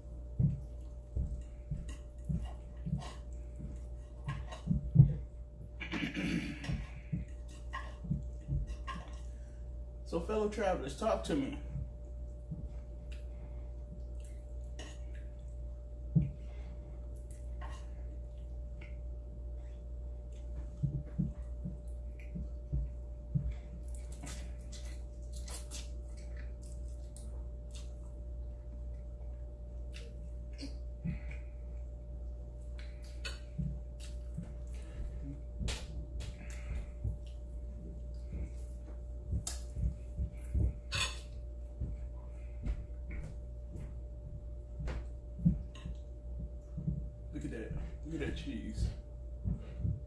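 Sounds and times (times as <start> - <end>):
soft low thumps: 0.0 - 10.1, 11.6 - 14.2, 15.3 - 17.1, 18.0 - 23.8, 28.4 - 50.0
steady hum: 0.0 - 50.0
wet chewing clicks and smacks: 11.8 - 16.4, 17.0 - 19.4, 20.0 - 43.9, 44.9 - 47.0.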